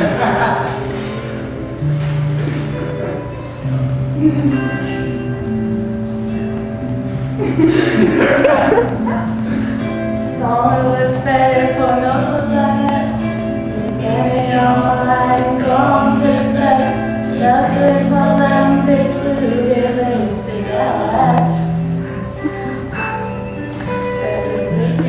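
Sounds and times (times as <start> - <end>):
held accompanying notes: 0.0 - 25.0
man and woman singing duet: 7.5 - 25.0.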